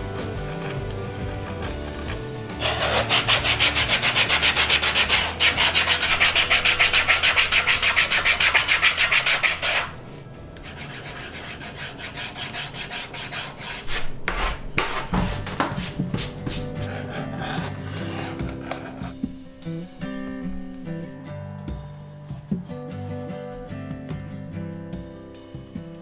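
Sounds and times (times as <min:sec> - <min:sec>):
sanding block scraping wood: 0:02.5 - 0:10.0, 0:10.6 - 0:19.2.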